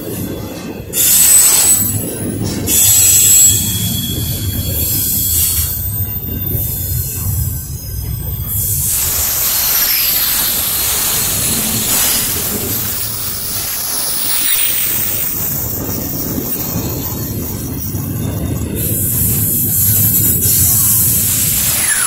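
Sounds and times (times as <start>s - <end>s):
train wheels rumbling on rail: 0.0s - 22.0s
wheel squeals: 17.9s - 22.0s.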